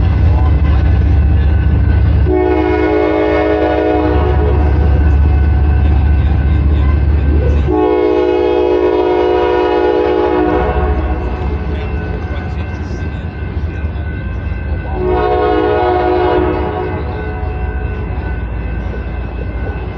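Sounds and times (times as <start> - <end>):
train horn blasts: 2.2 - 5.3, 7.4 - 11.7, 14.9 - 17.9.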